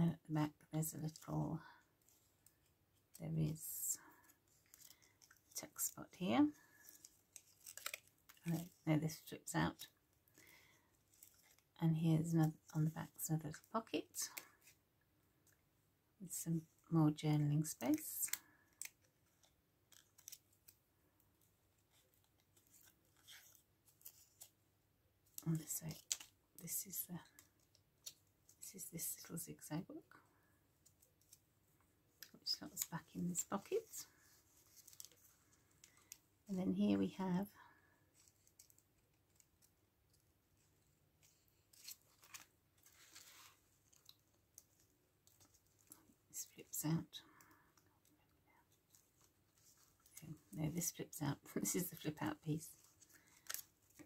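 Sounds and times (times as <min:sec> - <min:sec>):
paper and card rustling: 0:02.0 - 0:11.7, 0:17.6 - 0:20.8, 0:21.4 - 0:24.6, 0:25.3 - 0:29.3, 0:32.2 - 0:36.2, 0:38.0 - 0:46.8, 0:48.7 - 0:54.0
paper rustling and ticking: 0:06.7 - 0:08.8, 0:17.9 - 0:20.8, 0:33.5 - 0:36.2, 0:38.2 - 0:46.1, 0:52.8 - 0:54.0.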